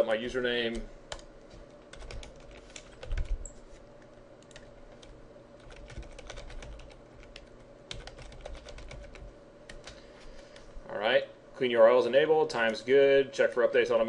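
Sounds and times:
faint hum: 0.0s - 14.0s
computer keyboard typing: 0.7s - 1.3s, 1.9s - 3.6s, 4.4s - 10.6s.

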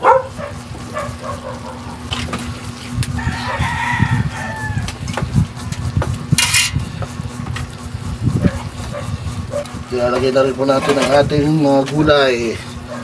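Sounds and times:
steady low hum: 0.0s - 13.0s
rooster crowing: 3.1s - 5.0s.

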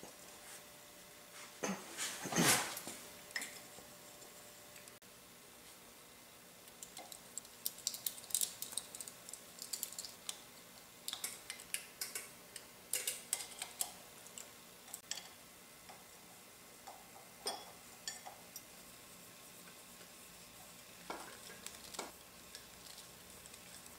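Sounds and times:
metal parts clicking and tapping: 11.1s - 15.3s.

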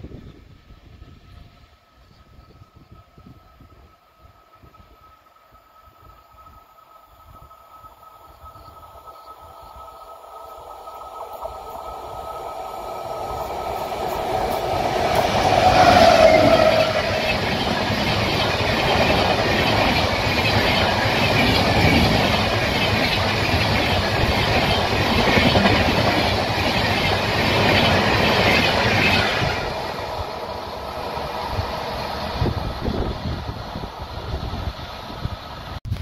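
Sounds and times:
train wheels roaring on rails: 0.0s - 36.0s.

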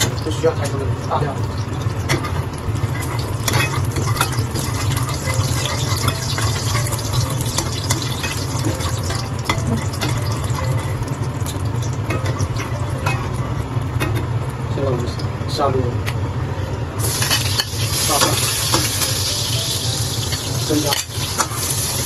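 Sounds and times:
oil sizzling in a wok: 0.0s - 14.8s, 17.0s - 22.0s
metal ladle stirring: 2.0s - 14.2s.

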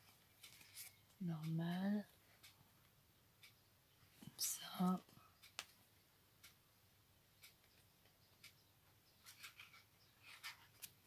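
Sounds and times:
faint ticks: 0.0s - 3.6s, 4.2s - 5.8s, 7.3s - 8.6s.

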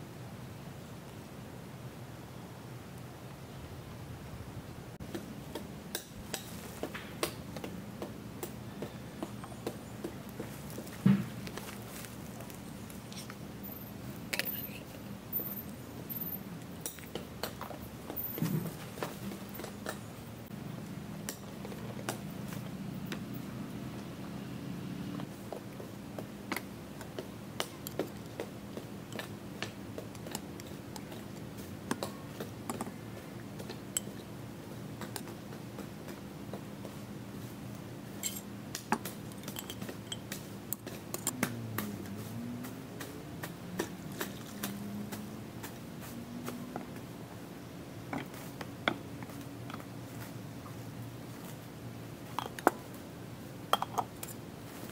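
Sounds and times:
cookware clinking and tapping: 53.7s - 54.1s.

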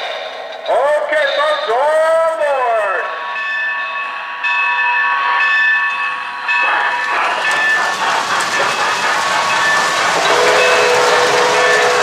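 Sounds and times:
running train noise: 0.0s - 12.0s
steam hissing rush: 6.2s - 12.0s
steam whistle chord: 10.2s - 12.0s.

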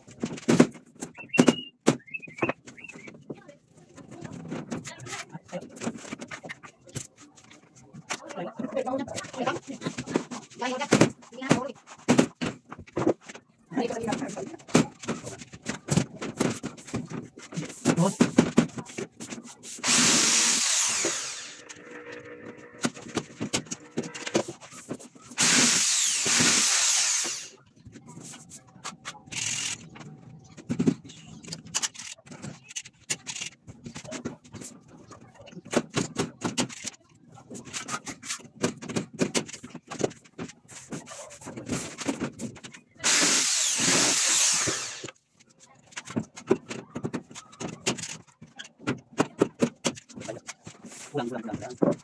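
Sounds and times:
knocks and clatter of plywood: 0.0s - 3.4s, 4.1s - 19.6s, 29.8s - 43.1s, 45.0s - 52.0s
power drill driving screws: 19.8s - 24.4s, 25.4s - 27.6s, 43.0s - 45.1s.

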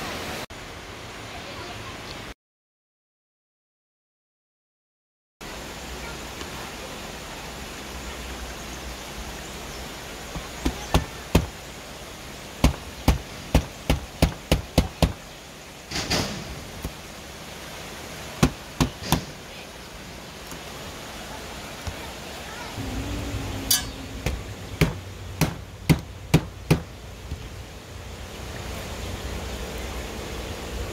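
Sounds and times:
sharp knocks: 10.3s - 11.6s, 12.6s - 15.2s, 18.4s - 19.3s, 23.7s - 27.5s.

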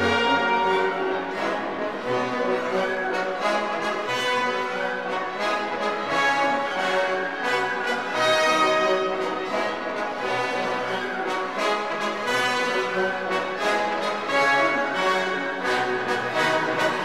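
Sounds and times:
orchestral music led by brass: 0.0s - 17.0s.

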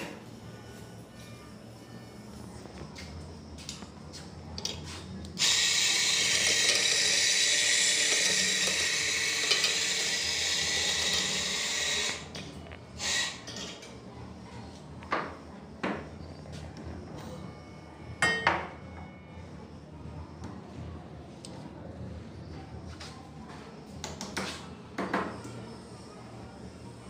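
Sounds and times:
coffee grinder grinding: 5.4s - 12.3s.

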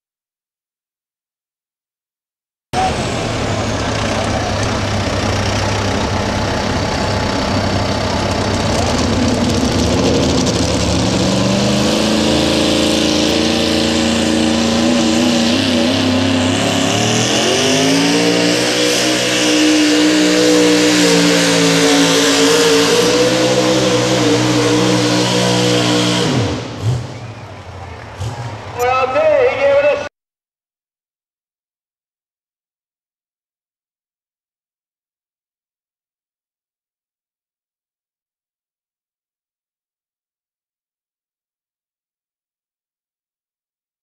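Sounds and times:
truck engine running under load: 2.8s - 28.8s.

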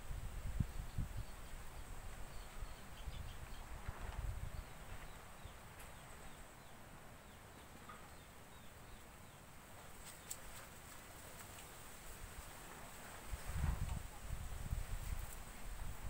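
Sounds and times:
distant bird calls: 0.7s - 10.6s.

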